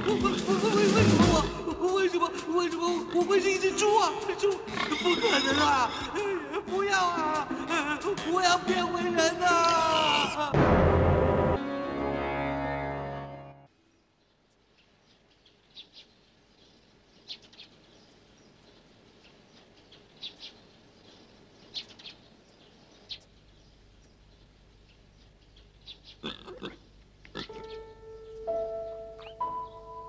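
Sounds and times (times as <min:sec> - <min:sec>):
pig grunting and squealing: 0:04.6 - 0:06.4, 0:26.2 - 0:27.8.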